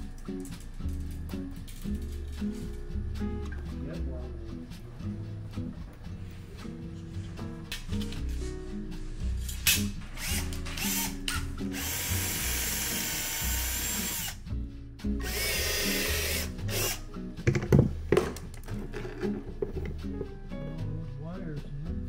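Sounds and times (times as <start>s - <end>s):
background music: 0.0s - 22.0s
cordless drill motor whine: 11.8s - 14.4s.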